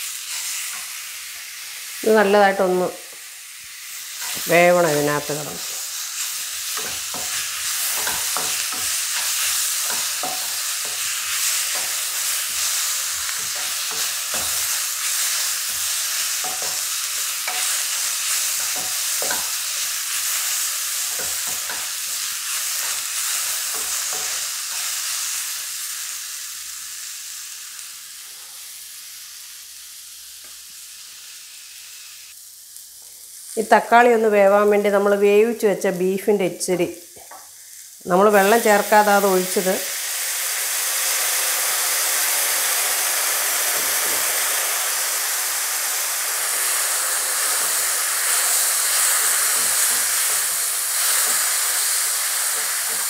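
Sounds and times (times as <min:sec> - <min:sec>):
masala sizzling in a pan: 0:00.0 - 0:53.0
spatula knocking on pan: 0:09.9 - 0:11.1.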